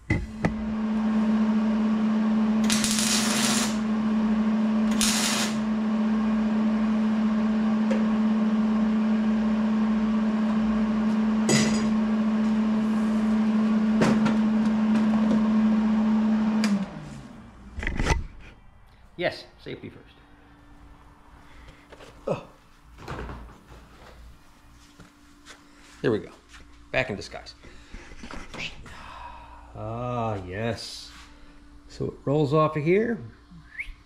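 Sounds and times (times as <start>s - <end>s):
electric machine humming: 0.0s - 17.8s
loud hissing bursts: 4.9s - 5.6s.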